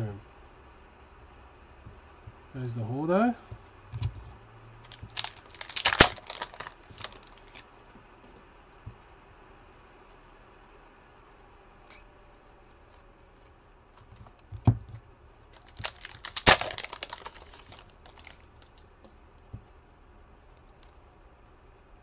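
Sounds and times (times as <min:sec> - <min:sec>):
wrapper tearing and crinkling: 0:04.8 - 0:07.6, 0:15.5 - 0:18.9.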